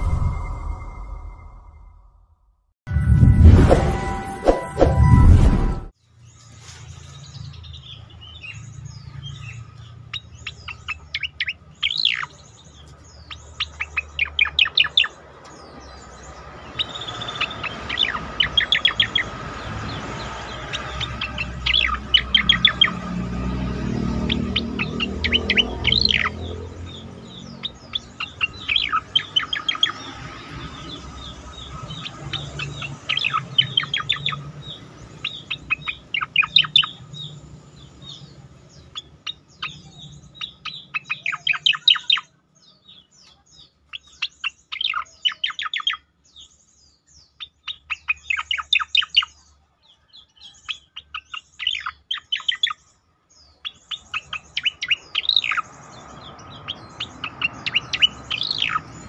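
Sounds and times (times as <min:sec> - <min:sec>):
bird sharp chirping runs: 0:24.2 - 0:59.0.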